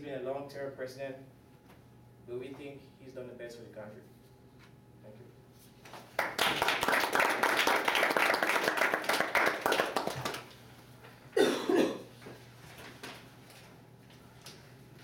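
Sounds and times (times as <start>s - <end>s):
audience applauding: 6.2s - 10.6s
person coughing: 11.4s - 12.1s.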